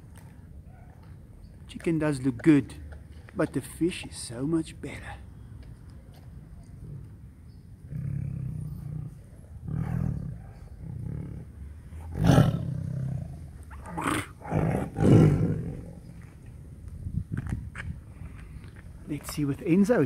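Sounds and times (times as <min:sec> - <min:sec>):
tiger growling and snarling: 0:07.9 - 0:16.0.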